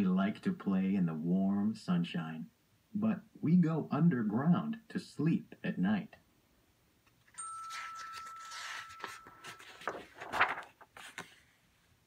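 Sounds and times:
paper page turning: 0:07.3 - 0:11.5
thin steady high tone: 0:07.4 - 0:09.4.

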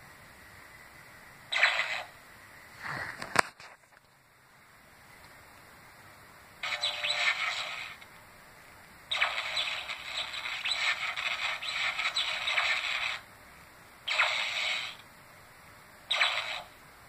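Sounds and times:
toy playing sound clips: 0:06.6 - 0:08.1, 0:09.1 - 0:13.2.

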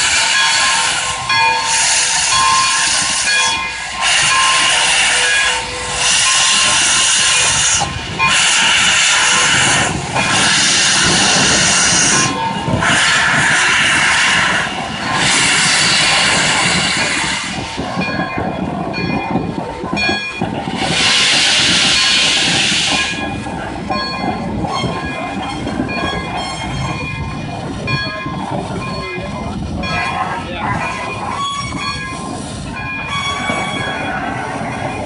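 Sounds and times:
steam locomotive hissing blasts: 0:00.0 - 0:35.0.

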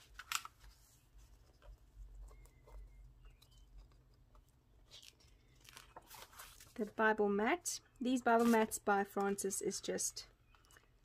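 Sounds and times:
paper crinkle: 0:00.0 - 0:07.0, 0:08.3 - 0:08.8.

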